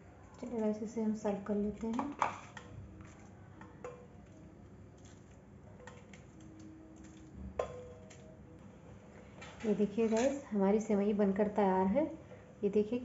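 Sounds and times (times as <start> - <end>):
spoon clinking against pot: 7.0 - 8.3.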